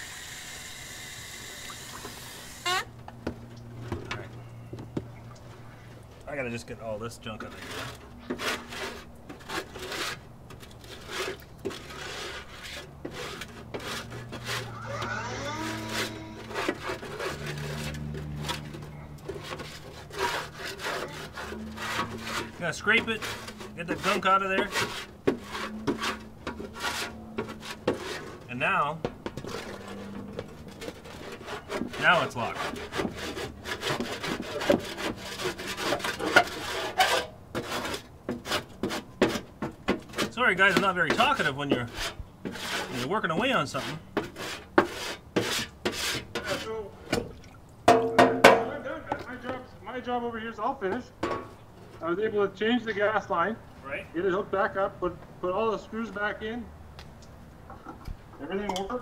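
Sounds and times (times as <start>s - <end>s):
scraping grease from grill: 7.2s - 28.6s, 29.3s - 38.7s.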